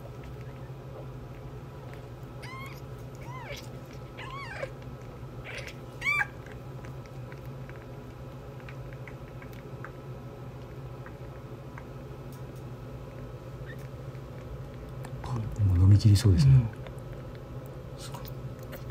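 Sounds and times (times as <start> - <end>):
kittens mewing: 2.4 - 6.4.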